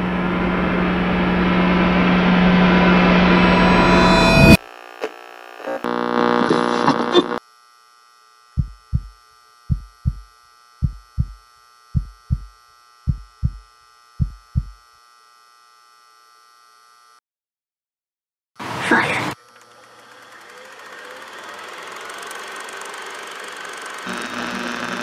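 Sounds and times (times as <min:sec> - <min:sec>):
loud multi-tone drone: 0:00.0 - 0:04.6, 0:05.8 - 0:07.4, 0:20.0 - 0:25.0
faint electronic hum: 0:02.5 - 0:17.1, 0:19.4 - 0:25.0
heartbeat thumps: 0:08.6 - 0:11.4, 0:12.0 - 0:14.8.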